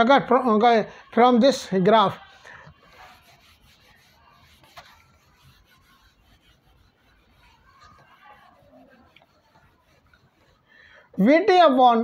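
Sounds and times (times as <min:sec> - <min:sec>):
duster rubbing whiteboard: 0:02.7 - 0:10.7.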